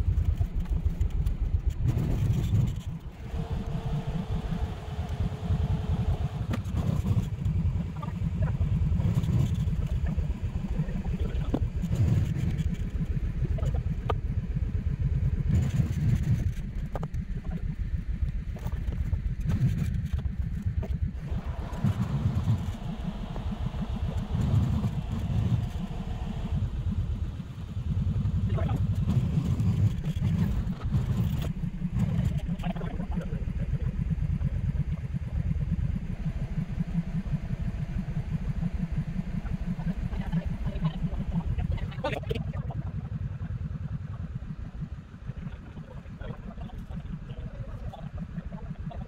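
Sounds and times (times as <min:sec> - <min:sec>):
vehicle engine running: 0:00.0 - 0:49.0.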